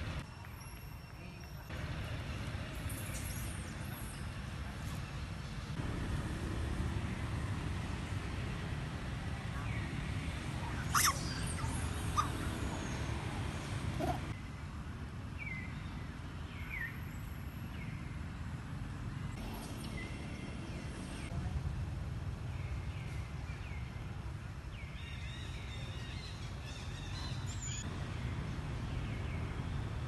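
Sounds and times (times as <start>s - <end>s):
animal chirps and squeaks: 10.8s - 13.0s
animal squeal: 10.9s - 12.4s.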